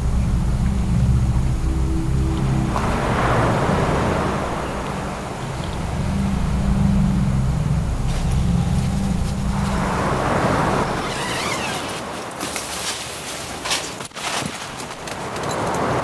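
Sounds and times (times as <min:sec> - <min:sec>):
low steady rumble: 0:00.0 - 0:12.1
tent zipper opening: 0:11.0 - 0:13.0.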